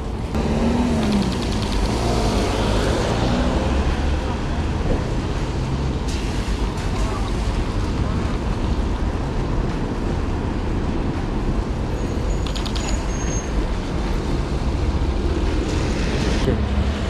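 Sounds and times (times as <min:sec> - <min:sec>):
city traffic rumble: 0:00.0 - 0:17.0
quick run of clicks: 0:00.9 - 0:02.3, 0:12.4 - 0:13.1.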